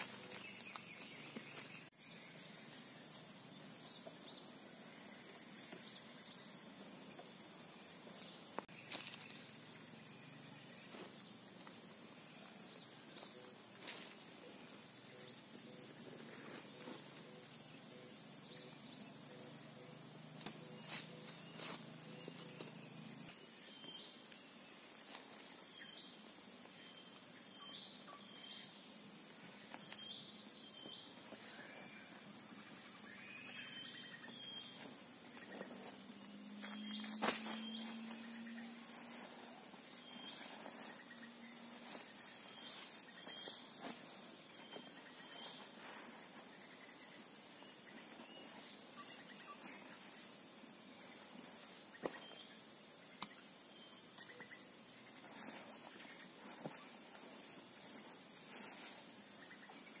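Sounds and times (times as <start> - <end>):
insects droning: 0.0 - 60.0
bird chirps: 29.6 - 35.8, 36.6 - 43.9, 44.5 - 50.4.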